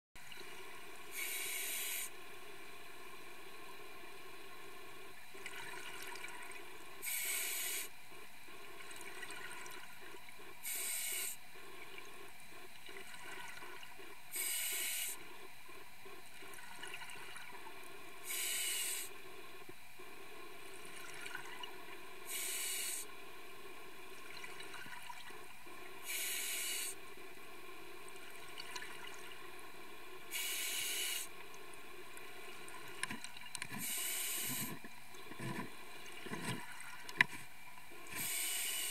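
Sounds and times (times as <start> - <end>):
diver breathing through regulator: 1.1 - 2.1, 7.0 - 8.0, 10.6 - 11.4, 14.3 - 15.2, 18.2 - 19.2, 22.3 - 23.1, 26.0 - 27.0, 30.3 - 31.3, 33.7 - 34.8, 38.1 - 38.9.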